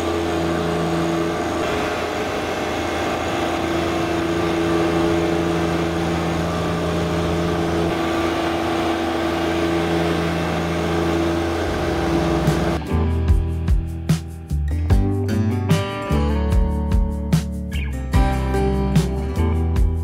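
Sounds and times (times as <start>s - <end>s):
tractor diesel engine running: 0.0s - 14.2s.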